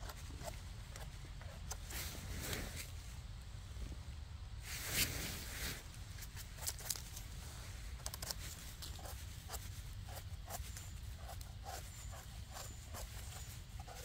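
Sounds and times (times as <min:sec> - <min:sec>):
leaves and twigs crunching: 0:04.6 - 0:14.0.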